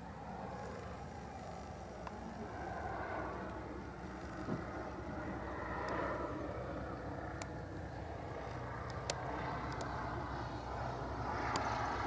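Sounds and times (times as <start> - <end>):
propeller aircraft engine droning: 0.0 - 12.0
faint clicks: 8.4 - 9.9.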